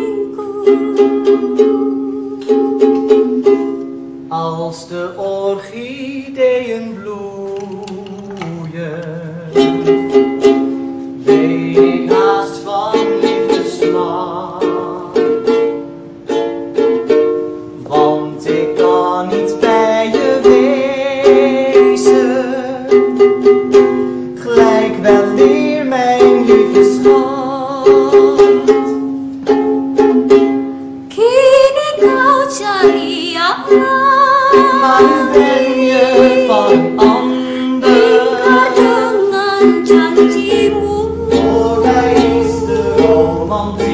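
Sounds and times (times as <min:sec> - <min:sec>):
woman singing: 0:00.0 - 0:03.6, 0:24.4 - 0:28.9, 0:31.1 - 0:43.9
ukulele strumming: 0:00.0 - 0:43.9.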